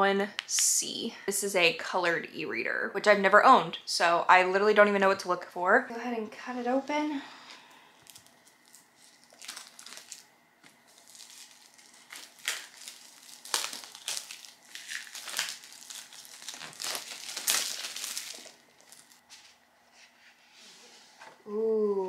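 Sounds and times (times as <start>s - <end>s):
plastic shrink wrap crinkling: 8.0s - 19.3s.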